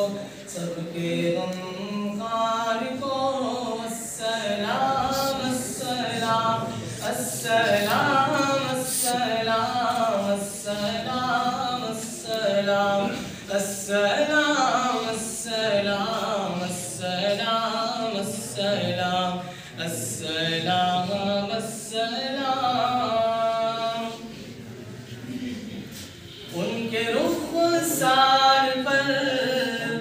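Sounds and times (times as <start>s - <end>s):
man singing unaccompanied: 0.0s - 24.4s, 26.5s - 30.0s.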